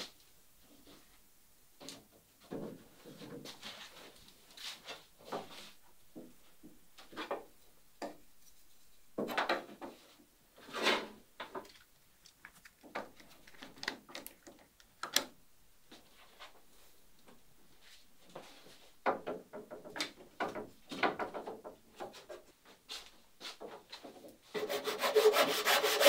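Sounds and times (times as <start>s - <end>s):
wood scraping on wood: 24.6s - 26.0s.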